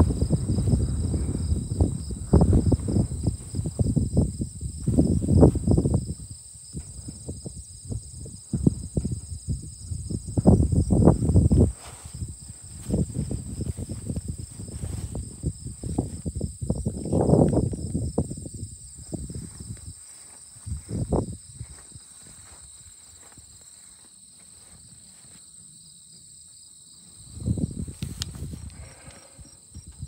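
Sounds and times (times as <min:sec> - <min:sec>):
low rumbling and rustling: 0:00.0 - 0:06.2, 0:10.0 - 0:18.4
insects trilling: 0:00.0 - 0:30.0.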